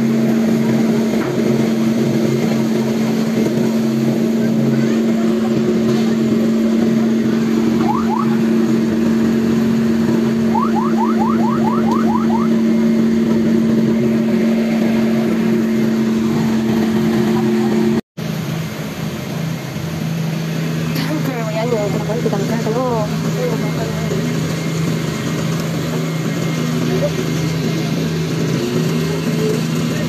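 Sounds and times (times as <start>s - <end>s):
fire truck engine running: 0.0s - 30.0s
short rising siren chirps: 7.6s - 8.7s, 10.3s - 13.0s.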